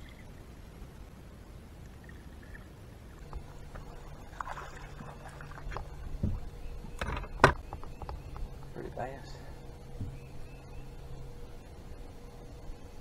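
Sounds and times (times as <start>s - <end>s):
muffled underwater rumble: 0.0s - 13.0s
steady low hum: 0.0s - 13.0s
water splashes: 1.7s - 7.1s.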